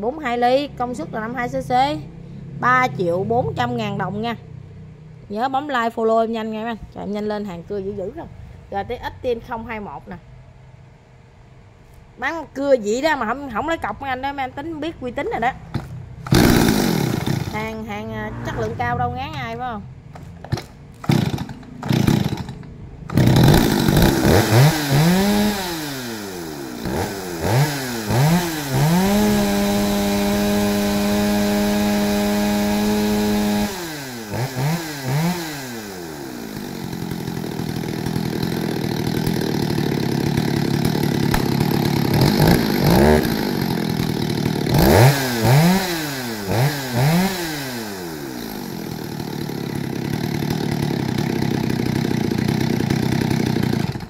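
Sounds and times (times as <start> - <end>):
chainsaw revving and idling: 15.7 - 54.0.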